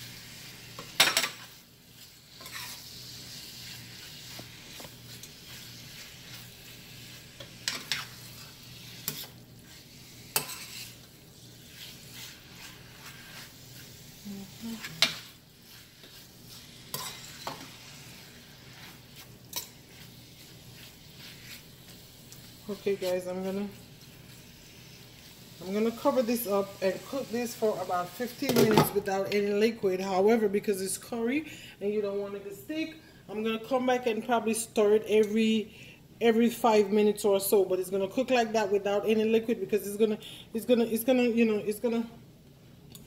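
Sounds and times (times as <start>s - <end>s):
chicken sizzling: 0.0s - 28.6s
metal spoon scraping a pot: 0.3s - 28.7s.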